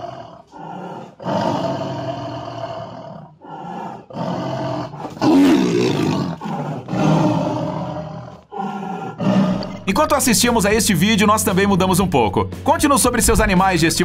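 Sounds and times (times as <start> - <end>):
tiger snarling and roaring: 0.0 - 10.1.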